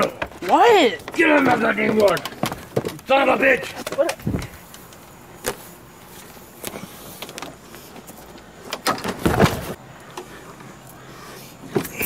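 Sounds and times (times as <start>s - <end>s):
knocks and thumps of handling: 0.0s - 4.8s, 8.7s - 9.8s.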